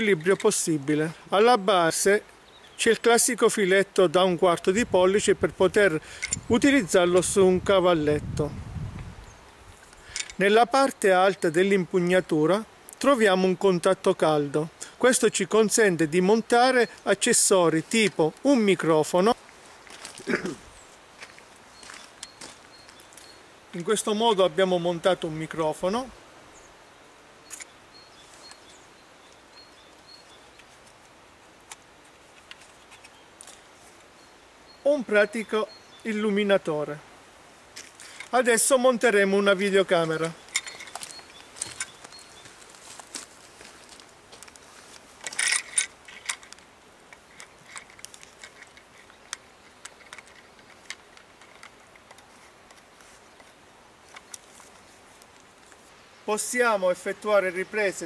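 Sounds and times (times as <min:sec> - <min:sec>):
bird chirping: 0:01.5 - 0:03.8, 0:27.4 - 0:30.7, 0:32.8 - 0:36.6, 0:38.1 - 0:42.6.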